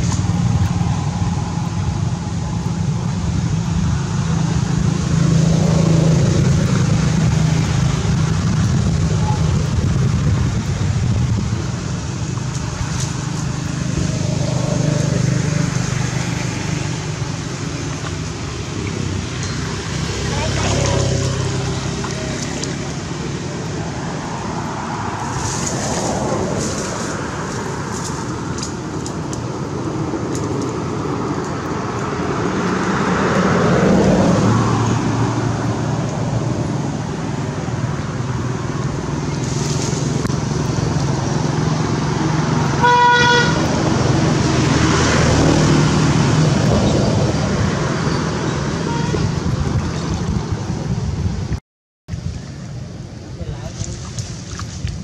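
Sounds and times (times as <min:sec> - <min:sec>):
road traffic passing: 0:00.0 - 0:55.0
car horn toot: 0:42.8 - 0:43.6, 0:48.8 - 0:49.3.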